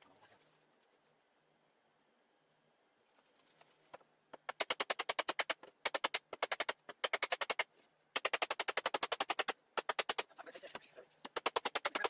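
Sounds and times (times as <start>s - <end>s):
rapid sharp clicks: 4.3s - 10.4s, 11.2s - 12.0s.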